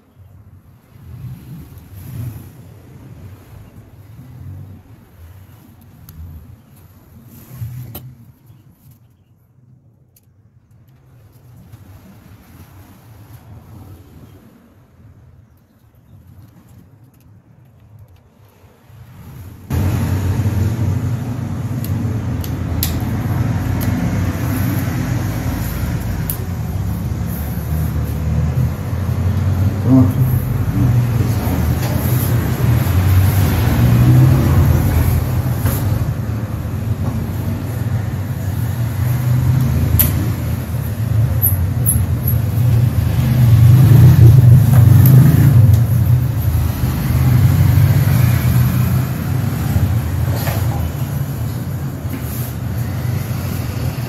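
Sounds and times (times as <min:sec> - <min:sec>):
motor traffic rumble: 0:19.2 - 0:54.0.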